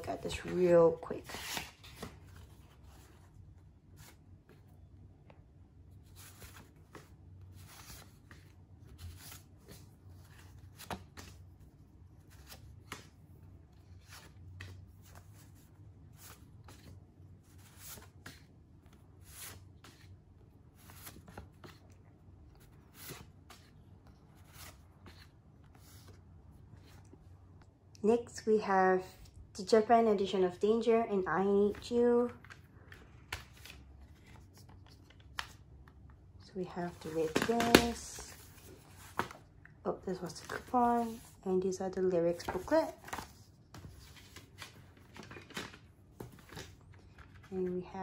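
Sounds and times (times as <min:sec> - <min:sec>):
paper cards sliding and flicking: 0:01.2 - 0:02.4.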